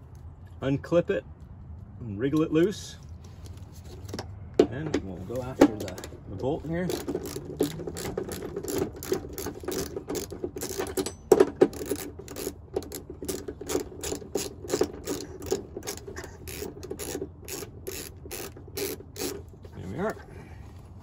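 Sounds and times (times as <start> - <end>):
ratchet clicking: 6.8 - 19.6.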